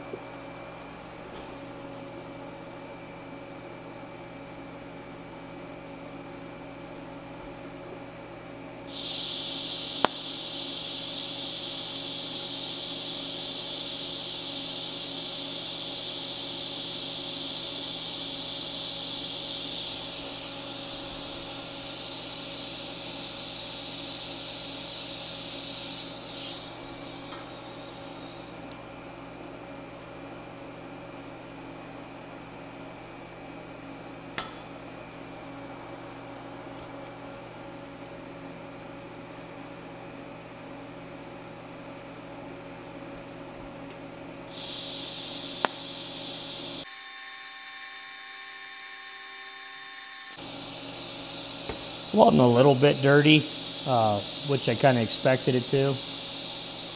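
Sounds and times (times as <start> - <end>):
welding arc hissing: 8.9 - 28.7, 44.4 - 46.9, 50.3 - 56.9.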